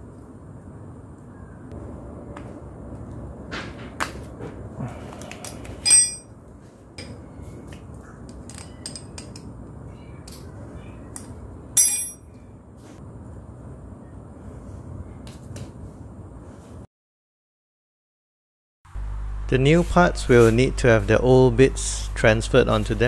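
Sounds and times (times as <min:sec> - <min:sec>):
wrench clinking on metal fittings: 0:05.8 - 0:06.3, 0:11.8 - 0:12.2.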